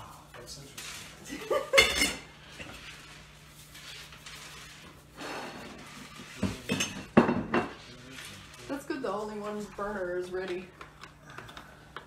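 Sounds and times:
metal pots and lids clattering: 0:01.5 - 0:02.3
pot scraping on stovetop: 0:02.0 - 0:09.6.

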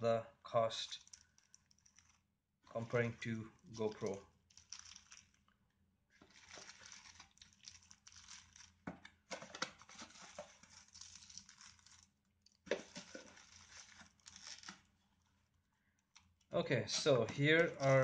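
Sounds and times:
plastic bags crinkling: 0:00.9 - 0:02.2, 0:03.6 - 0:05.6, 0:06.2 - 0:15.0, 0:16.9 - 0:18.0.

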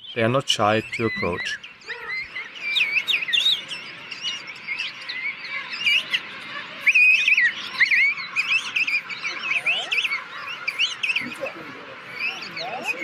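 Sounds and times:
penguin chicks whistling calls: 0:00.0 - 0:13.0.

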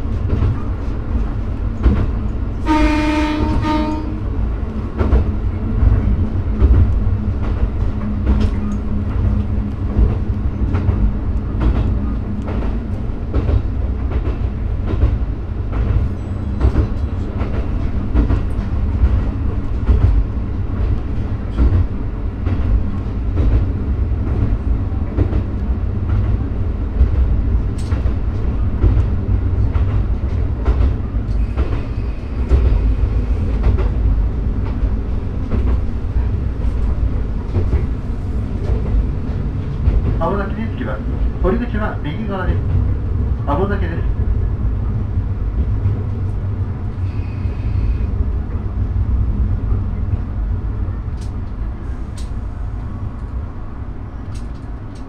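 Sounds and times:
train wheels clicking over rail joints: 0:04.9 - 0:40.4.

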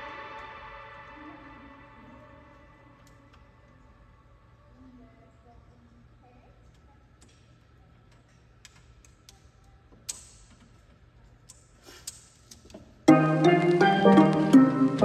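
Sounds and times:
background piano music: 0:13.1 - 0:15.0.

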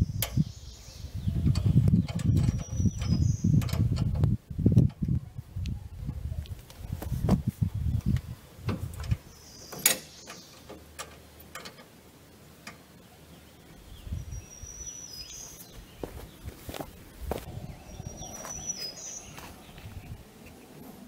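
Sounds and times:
birds chirping: 0:00.0 - 0:04.0, 0:09.0 - 0:21.0
metal clicks and knocks: 0:01.4 - 0:05.1, 0:08.7 - 0:11.9
low rumble: 0:16.4 - 0:20.3.

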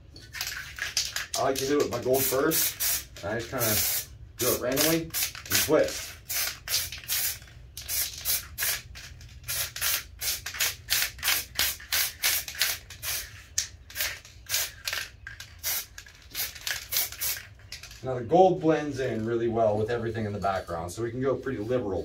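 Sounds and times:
spray paint bursts: 0:00.4 - 0:17.6.

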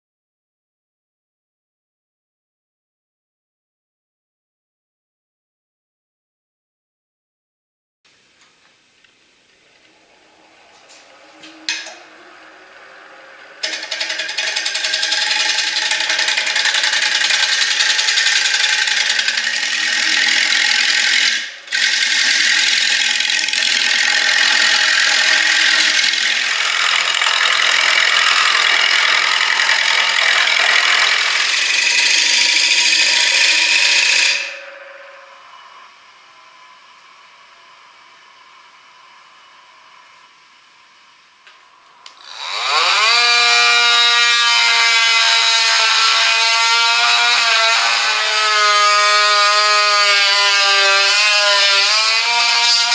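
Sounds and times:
lathe gouge shaving hiss: 0:09.4 - 0:41.4.

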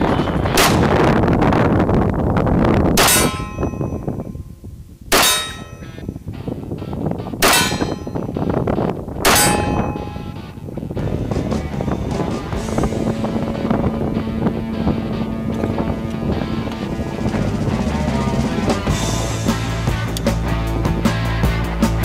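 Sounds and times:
steel plate target clanging: 0:03.0 - 0:04.4, 0:05.1 - 0:06.1, 0:07.4 - 0:08.6, 0:09.2 - 0:10.6.

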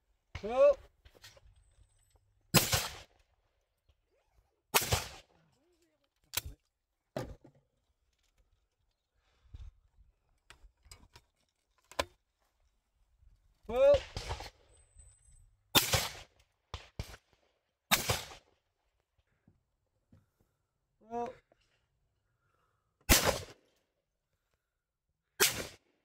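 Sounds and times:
shotgun shots: 0:02.5 - 0:03.1, 0:04.7 - 0:05.3, 0:15.8 - 0:17.2, 0:17.9 - 0:18.4, 0:23.1 - 0:23.6, 0:25.4 - 0:25.8.

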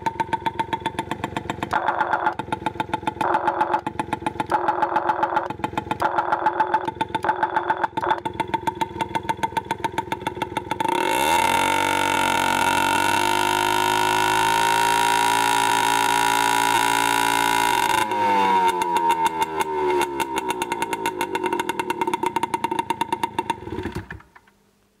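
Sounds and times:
scooter engine running: 0:00.0 - 0:24.2.

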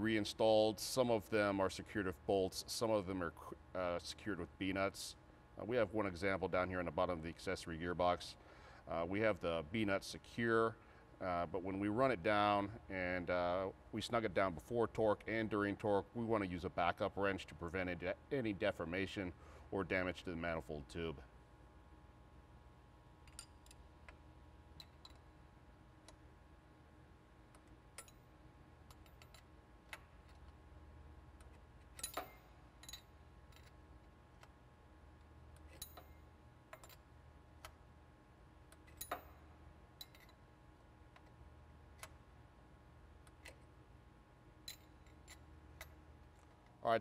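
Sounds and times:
low steady hum: 0:00.0 - 0:47.0
metallic wrench clicks: 0:24.8 - 0:25.3, 0:31.4 - 0:33.8, 0:40.0 - 0:40.4.

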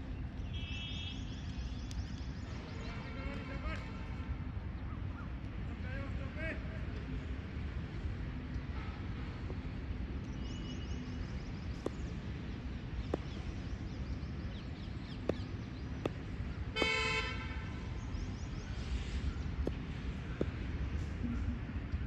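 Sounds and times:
low background noise: 0:00.0 - 0:22.0
vehicle horn toot: 0:16.8 - 0:17.6.

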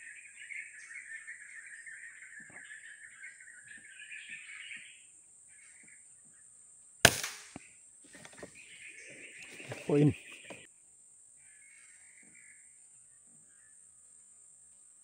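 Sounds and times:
birds chirping: 0:00.0 - 0:06.6, 0:07.5 - 0:10.7
rifle shot: 0:07.0 - 0:07.7.

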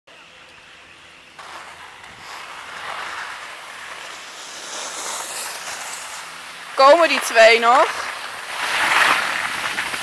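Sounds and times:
skis sliding over snow: 0:01.4 - 0:10.0.

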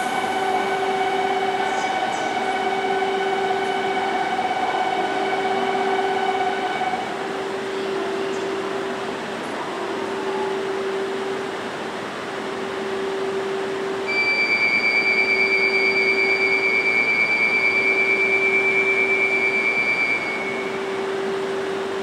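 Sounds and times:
warbling electronic warning tone: 0:00.0 - 0:08.7, 0:14.1 - 0:21.9
train equipment humming: 0:00.0 - 0:22.0.

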